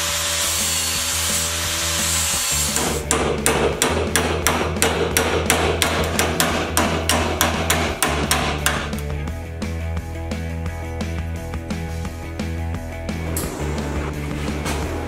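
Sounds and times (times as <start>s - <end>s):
angle grinder grinding metal: 0.0s - 3.0s.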